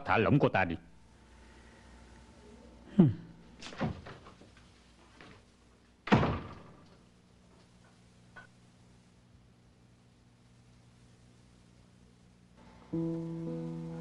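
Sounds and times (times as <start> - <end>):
door slamming shut: 3.6 - 4.2, 6.1 - 6.8
interior door opening thunk: 3.6 - 4.3, 6.0 - 6.9.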